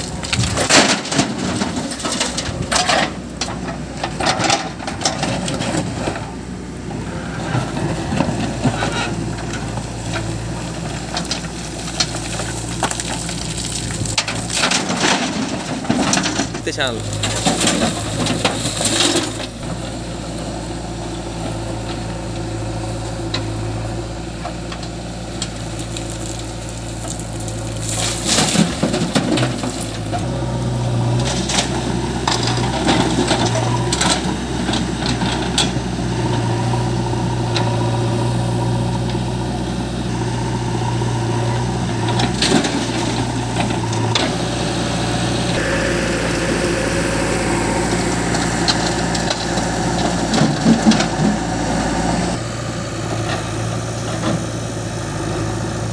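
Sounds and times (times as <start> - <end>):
diesel engines running: 0.0 - 55.9
earth and stones clattering into trailer: 11.0 - 19.6.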